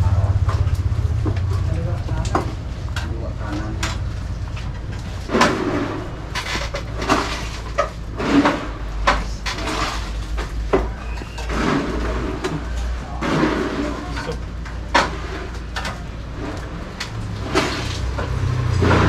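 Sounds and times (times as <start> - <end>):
low rumble: 0.0 - 10.8
knocks bangs and clatter: 0.0 - 19.0.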